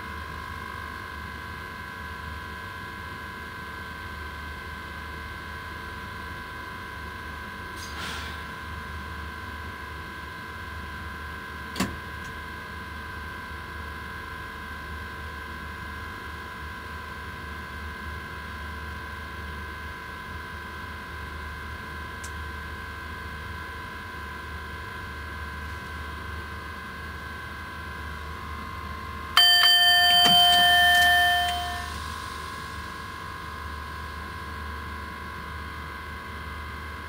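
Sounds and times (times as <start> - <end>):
high whining tones: 29.4 - 32.4.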